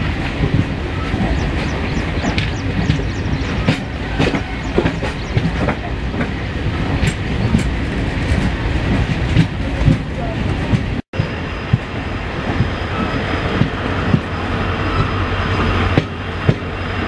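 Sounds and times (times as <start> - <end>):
wheels clattering over rails: 0.0 - 11.8
train rolling rumble: 0.0 - 17.0.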